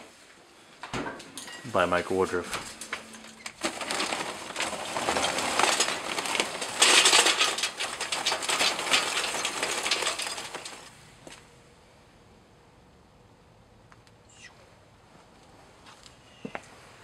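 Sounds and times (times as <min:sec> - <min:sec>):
charcoal clattering into metal: 0:01.0 - 0:10.9.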